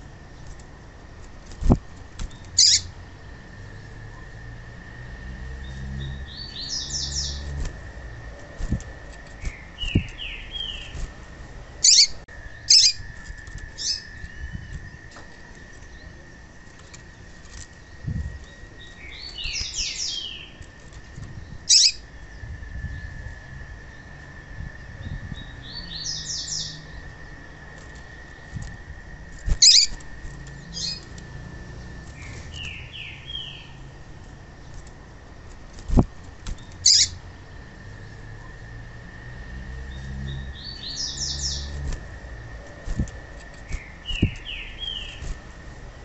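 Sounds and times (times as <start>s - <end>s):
bird chirping: 2.3s - 3.9s, 5.5s - 11.0s, 11.8s - 20.7s, 21.3s - 23.1s, 25.0s - 27.5s, 29.5s - 33.9s, 36.6s - 37.2s, 39.8s - 42.0s, 42.6s - 45.4s.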